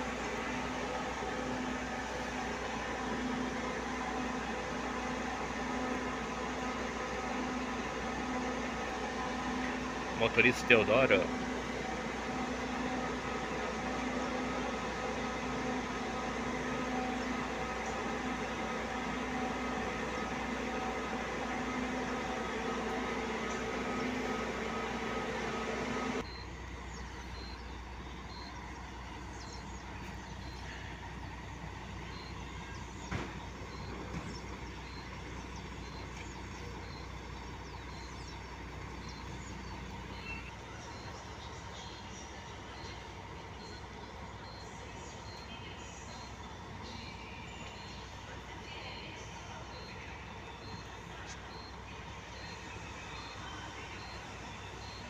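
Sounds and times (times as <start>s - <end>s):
bus engine idling: 0.0s - 55.0s
faint high beep: 26.2s - 26.5s.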